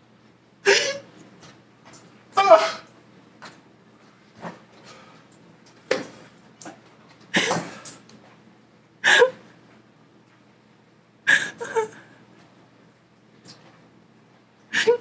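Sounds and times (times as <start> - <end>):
person coughing and gasping: 0.6 - 1.1, 2.4 - 2.9, 7.3 - 8.0.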